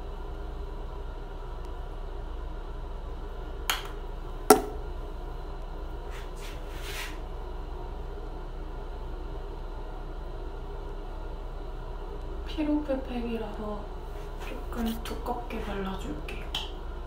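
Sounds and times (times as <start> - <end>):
tube cap snapping shut: 3.7 - 4.8.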